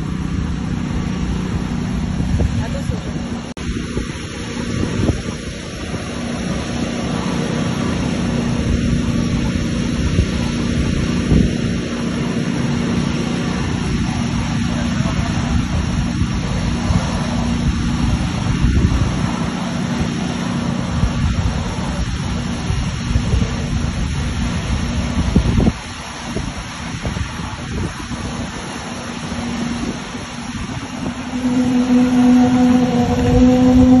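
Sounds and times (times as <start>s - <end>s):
jet engines running: 0.0s - 34.0s.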